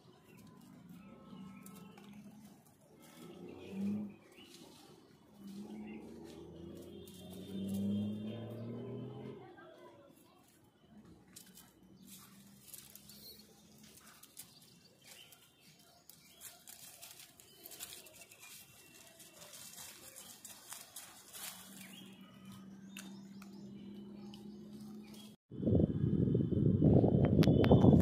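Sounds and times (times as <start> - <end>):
footsteps through dry leaves: 0.0 - 8.8, 11.3 - 23.7.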